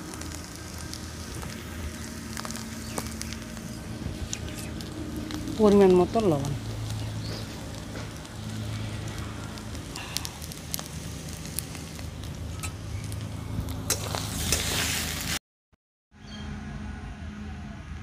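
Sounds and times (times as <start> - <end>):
steady low rumble: 0.0 - 14.4
wood fire crackling: 0.0 - 15.4.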